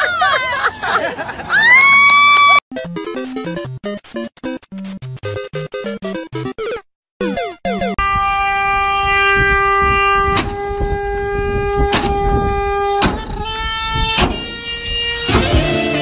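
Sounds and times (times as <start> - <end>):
sharp clicks: 2.9 - 6.5
car horn blast: 8.0 - 16.0.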